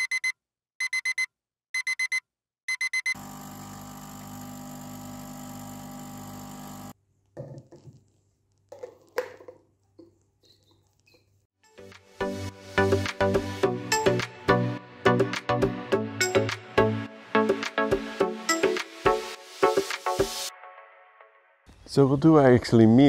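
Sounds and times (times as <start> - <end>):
alarm clock beeping: 0.0 - 3.2.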